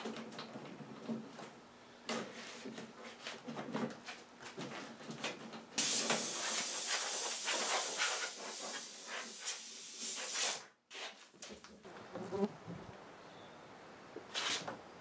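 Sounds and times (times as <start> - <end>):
compressed air hissing: 5.8 - 10.7.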